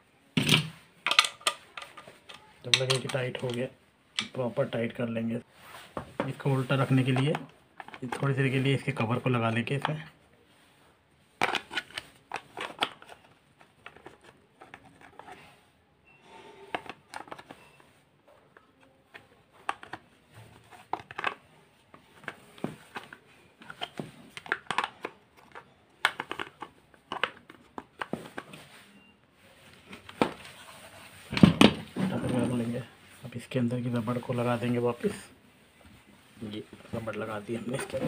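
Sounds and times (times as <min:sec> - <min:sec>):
plastic parts clicking and rattling: 0:00.4 - 0:04.4, 0:07.0 - 0:08.4, 0:11.4 - 0:15.4, 0:20.6 - 0:28.6.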